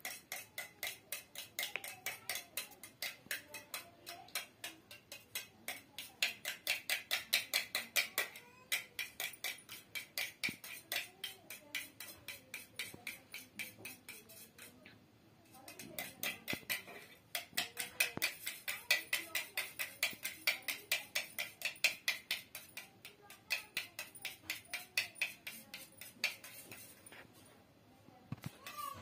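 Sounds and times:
spoon clinking in metal tumbler: 15.8s - 22.9s.

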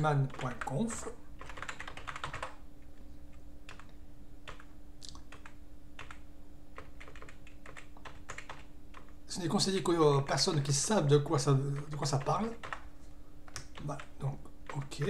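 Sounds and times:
computer keyboard typing: 0.0s - 2.6s, 3.7s - 6.2s, 6.8s - 9.2s, 11.6s - 12.9s, 13.5s - 15.0s
faint steady hum: 0.0s - 15.0s.

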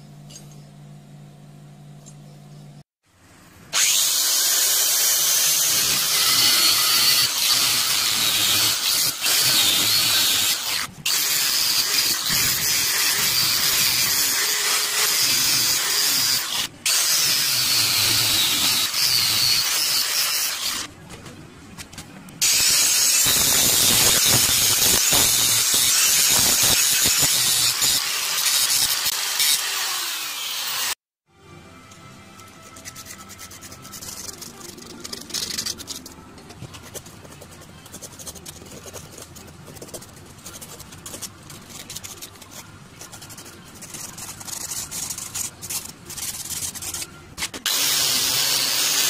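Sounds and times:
angle grinder grinding metal: 3.8s - 20.9s, 22.4s - 31.0s.

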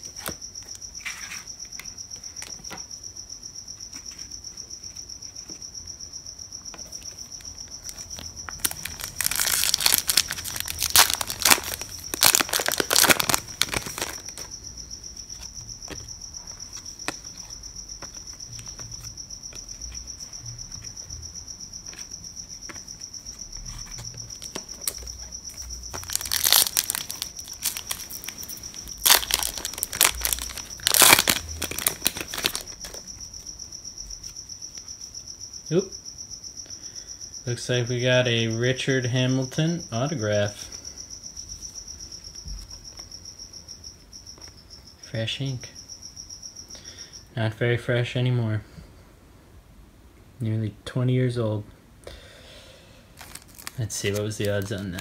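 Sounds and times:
cricket chirping trill: 0.0s - 55.0s
wrapper crinkled and torn open: 8.6s - 14.5s, 24.5s - 25.0s, 25.9s - 33.0s, 53.2s - 55.0s.

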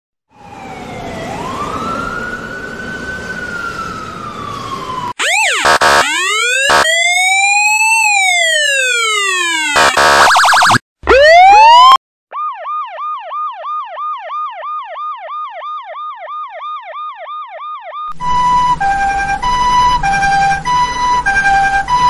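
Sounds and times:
police siren wailing: 0.3s - 22.0s
police siren whooping and blipping: 0.3s - 22.0s
street noise: 17.7s - 22.0s.

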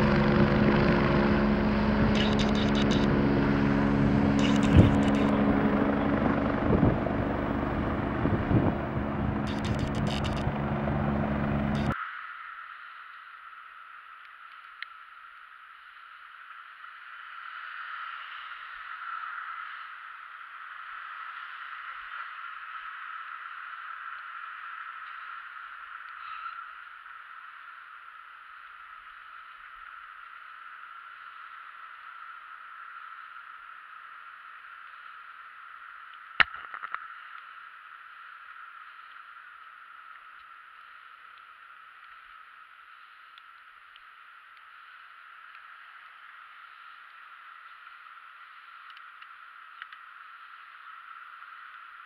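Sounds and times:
bicycle tyres hissing on wet street: 11.9s - 36.1s, 37.5s - 52.0s.

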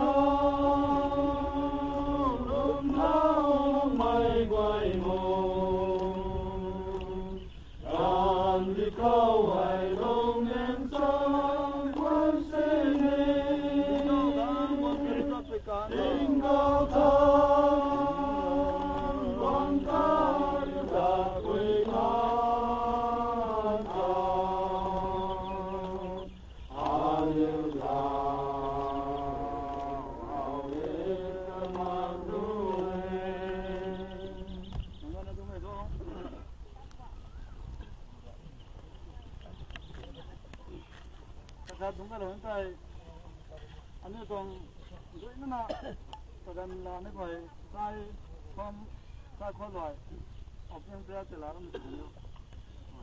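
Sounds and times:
men singing a hymn: 0.0s - 35.2s.

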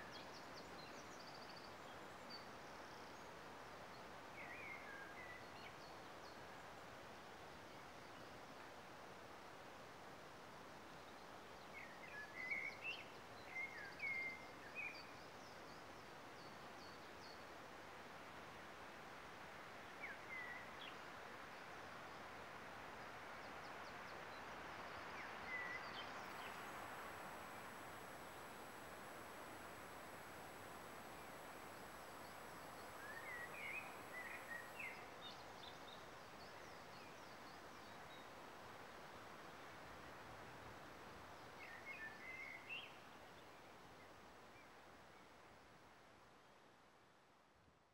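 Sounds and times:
steady soft hiss: 0.0s - 47.9s
wind through trees: 0.0s - 47.9s
songbird singing: 4.4s - 6.4s, 11.0s - 17.4s, 19.8s - 22.2s, 23.4s - 38.4s, 41.4s - 45.3s.

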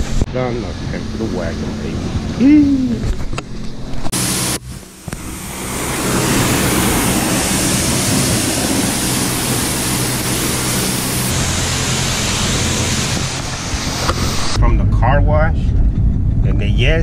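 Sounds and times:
low steady hum: 0.0s - 17.0s
pressure washer spraying water: 4.1s - 14.6s.

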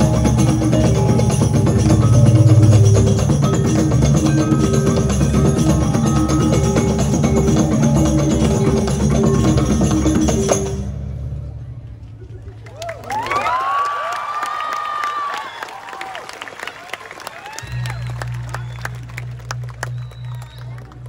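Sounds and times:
drums: 0.0s - 12.5s.

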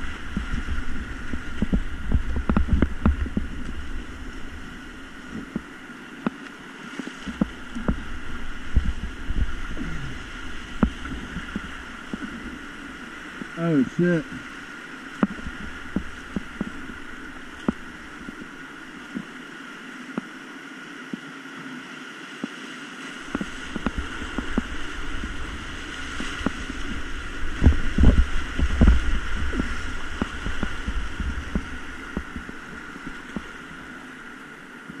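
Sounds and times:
paddle knocks and splashes: 0.0s - 19.4s, 22.5s - 34.3s
rushing whitewater: 0.0s - 35.0s
kayak crashing through wave: 6.8s - 19.4s, 23.1s - 34.3s.

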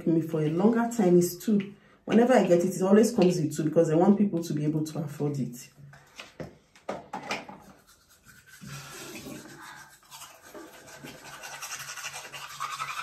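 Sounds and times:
toothbrush scrubbing teeth: 7.6s - 13.0s.

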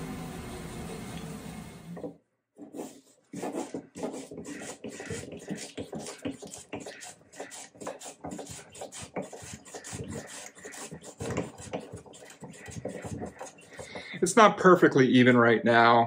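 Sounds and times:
hand plane shaving wood: 2.7s - 14.3s.

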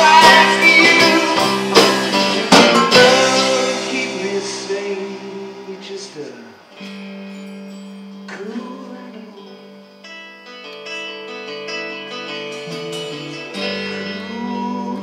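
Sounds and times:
banjo: 0.0s - 4.6s
bass guitar: 0.0s - 9.9s, 10.9s - 15.0s
electric guitar: 0.0s - 15.0s
strummed acoustic guitars: 0.0s - 15.0s.

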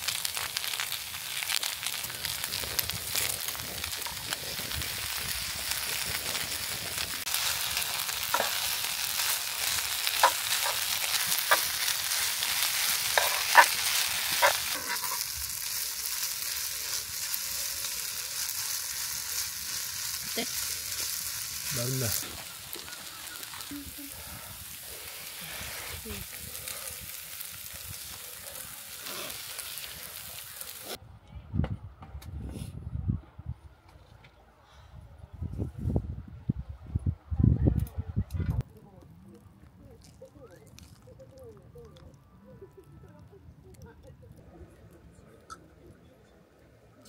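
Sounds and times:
fire popping: 0.0s - 31.0s, 37.7s - 47.0s
rice sizzling on a griddle: 0.0s - 31.0s, 40.0s - 41.3s
wood fire crackling: 0.0s - 31.0s, 38.6s - 47.0s
faint low voices: 37.2s - 47.0s.

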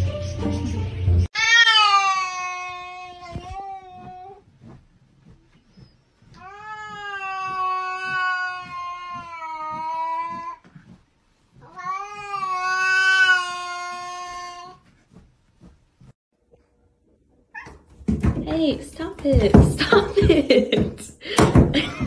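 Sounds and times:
cat yowling: 1.4s - 4.1s, 6.4s - 10.4s, 11.7s - 14.8s.

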